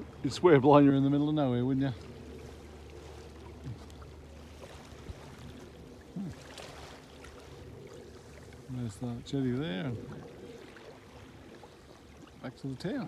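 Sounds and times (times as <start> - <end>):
small waves lapping: 0.0 - 13.0.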